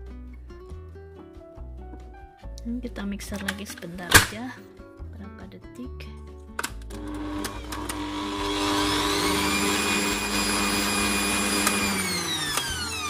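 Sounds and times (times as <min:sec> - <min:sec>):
stand mixer motor whine: 0:06.9 - 0:13.0.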